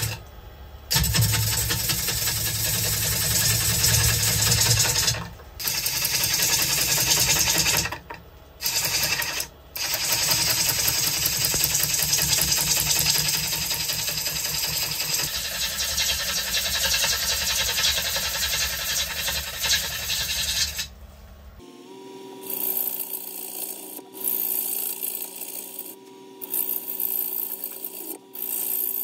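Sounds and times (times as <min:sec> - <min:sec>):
gouge rasping on spinning wood: 0:08.6 - 0:20.9, 0:22.5 - 0:29.0.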